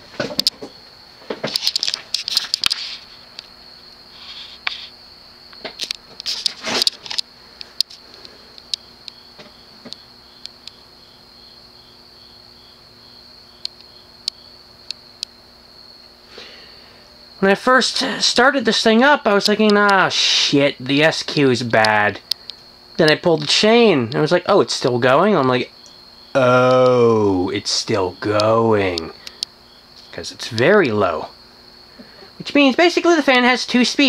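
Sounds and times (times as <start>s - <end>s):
sharp clicks and knocks: 0.2s - 2.8s
ceiling fan motor humming: 7.2s - 34.0s
light ticks: 21.8s - 24.2s, 28.9s - 29.6s.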